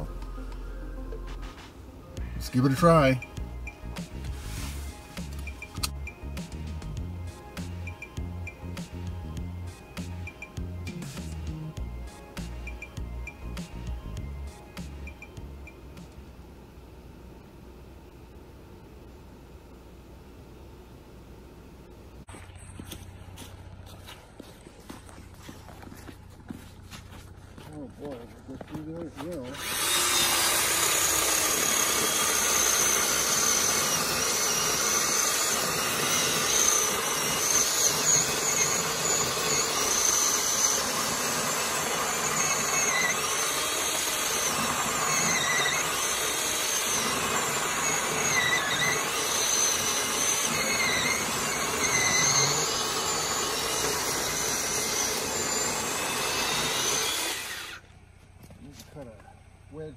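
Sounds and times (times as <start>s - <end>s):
electric chainsaw cutting log: 2.4s - 11.8s, 29.4s - 58.0s.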